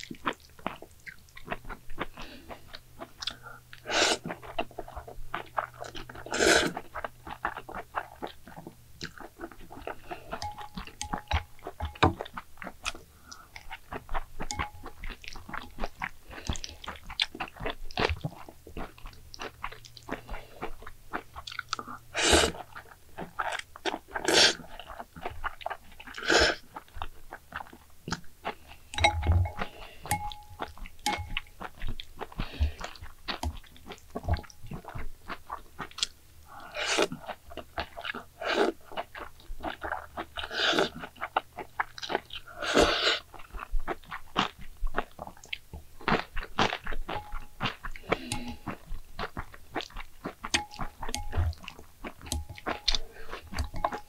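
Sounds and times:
person chewing noodles: 0.0 - 54.0.

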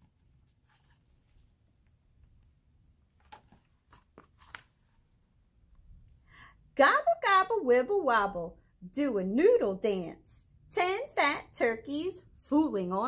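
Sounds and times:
book pages turning: 0.0 - 2.5, 3.1 - 5.2.

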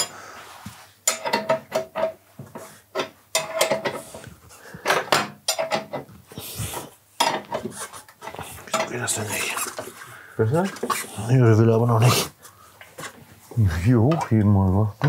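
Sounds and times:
metal tools clinking and knocking: 1.0 - 2.2, 3.0 - 4.1.

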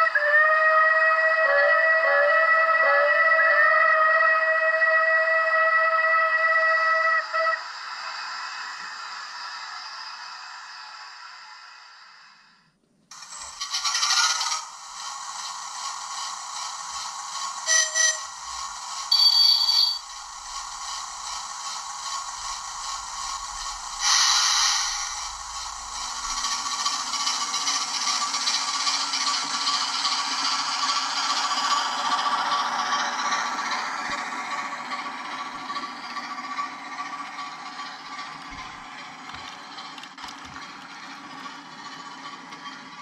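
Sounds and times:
model train motor whir: 13.1 - 43.0
model train wheels rattling on rails: 13.1 - 43.0
low hum: 18.4 - 27.2.

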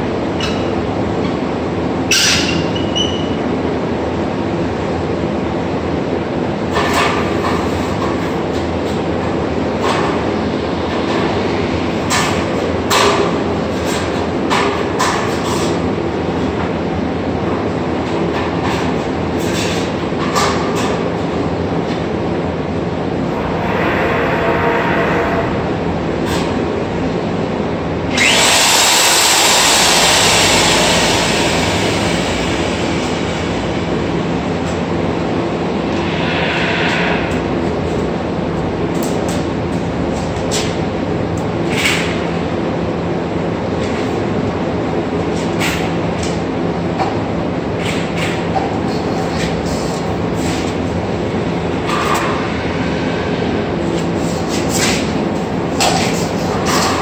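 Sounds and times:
core drill cutting concrete: 28.2 - 32.2
loud hissing rush: 30.0 - 38.9.

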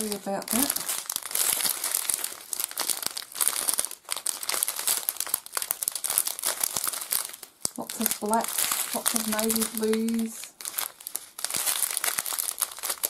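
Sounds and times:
plastic bags crinkling: 0.0 - 13.0.

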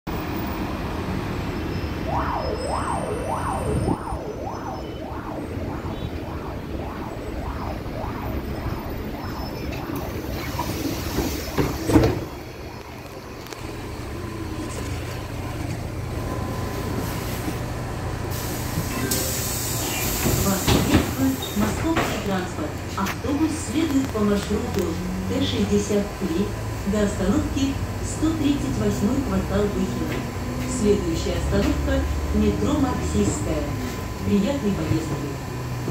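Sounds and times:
bus rumbling: 0.0 - 35.9
low drone: 1.5 - 15.6
warbling chirp: 1.8 - 12.6.

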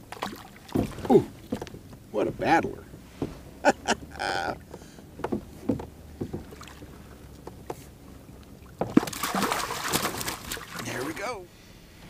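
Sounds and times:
fish splashing water: 0.0 - 1.6, 6.3 - 7.4, 8.2 - 11.2.

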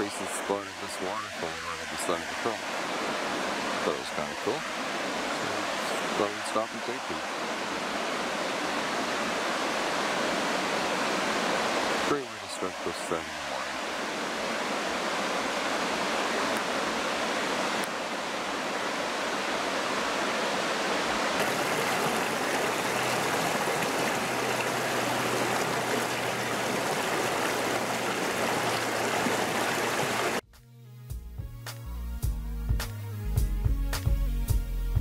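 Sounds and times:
waterfall rushing: 0.0 - 30.4
music: 30.4 - 35.0.

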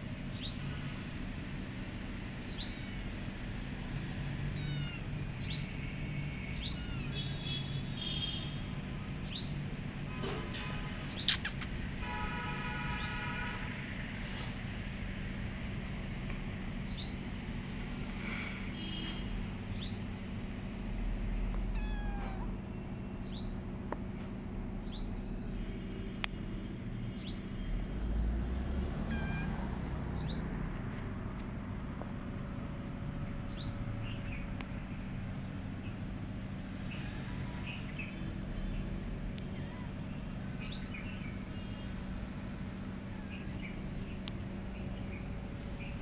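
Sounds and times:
kitten mewing: 4.5 - 5.1, 6.6 - 7.2, 21.5 - 22.6, 29.0 - 29.9, 39.4 - 40.0.

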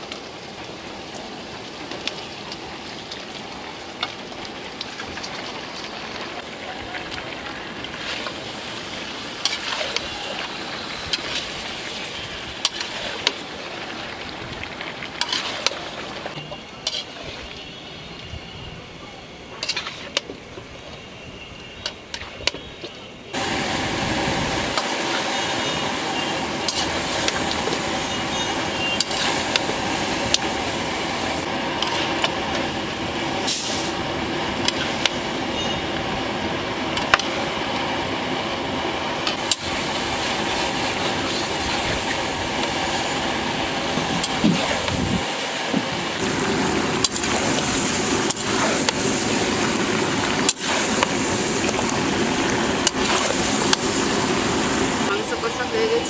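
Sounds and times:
chicken frying and sizzling: 0.0 - 17.9, 23.2 - 56.0
metal spatula scraping a pan: 9.4 - 10.0, 15.2 - 15.7, 16.8 - 17.2, 19.6 - 20.2.

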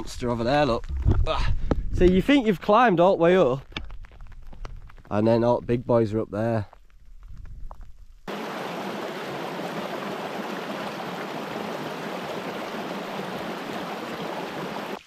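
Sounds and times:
stream rushing over rocks: 8.3 - 15.0.

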